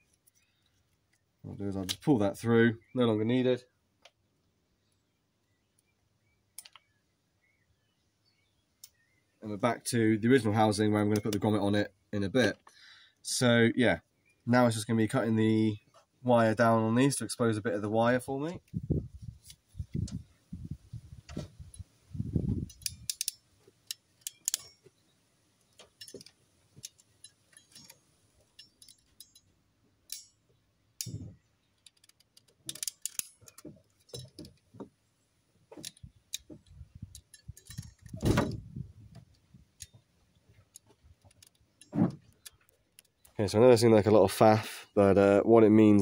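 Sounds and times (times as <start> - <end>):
wire cutters snipping: 31.0 - 34.5.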